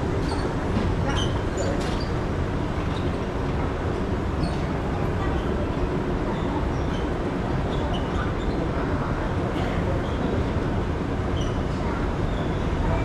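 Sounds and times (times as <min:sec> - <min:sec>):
escalator rumble and hum: 0:00.0 - 0:13.0.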